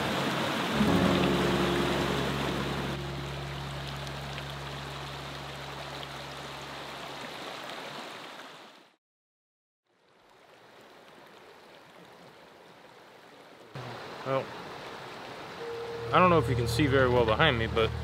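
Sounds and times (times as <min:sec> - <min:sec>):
creek rushing over rocks: 0:00.0 - 0:09.0, 0:10.0 - 0:17.9
outdoor ambience hiss: 0:09.9 - 0:18.0.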